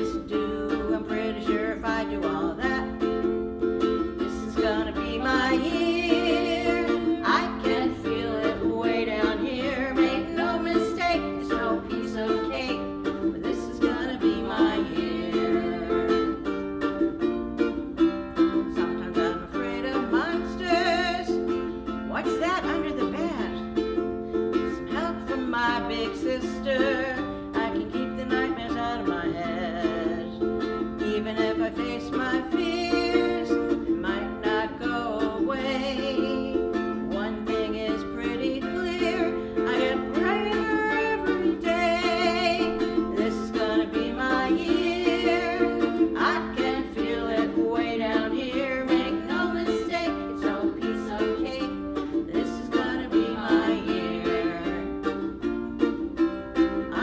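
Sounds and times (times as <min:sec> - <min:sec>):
woman singing: 0:00.0 - 0:16.6, 0:18.4 - 0:55.4, 0:56.6 - 0:57.0
strummed ukulele: 0:00.0 - 0:57.0.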